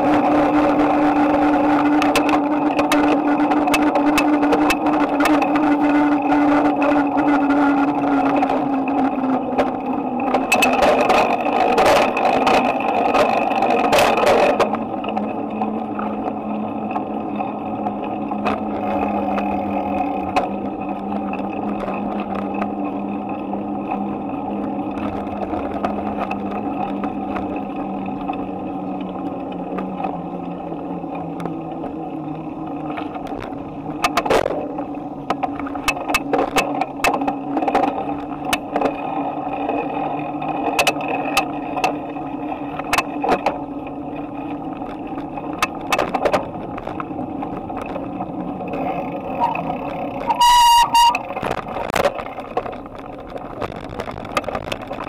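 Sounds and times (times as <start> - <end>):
bicycle rolling hum: 0.0 - 55.0
loud ringing tone: 49.4 - 49.7, 50.3 - 51.3.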